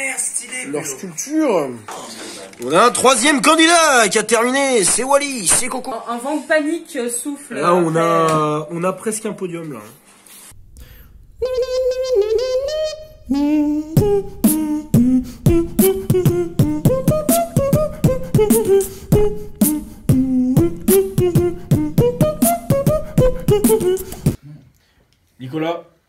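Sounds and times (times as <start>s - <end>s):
beatboxed percussion hits: 4.9s - 5.9s, 11.4s - 24.4s
person singing: 11.4s - 24.4s.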